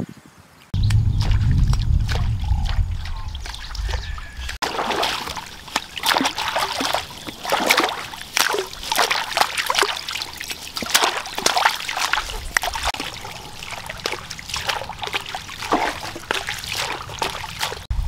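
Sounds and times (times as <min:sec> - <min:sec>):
low rumble: 0:00.8 - 0:04.6
muddy water splashing and trickling: 0:00.8 - 0:18.0.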